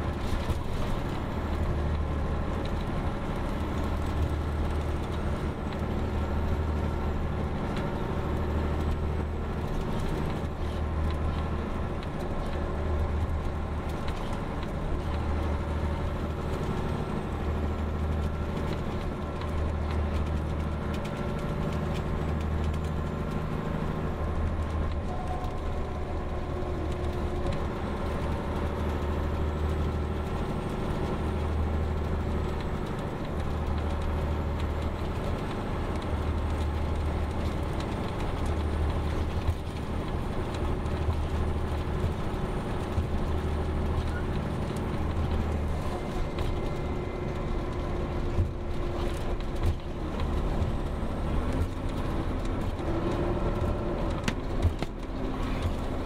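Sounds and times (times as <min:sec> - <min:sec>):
bus engine droning: 0:00.0 - 0:56.0
road noise: 0:00.0 - 0:56.0.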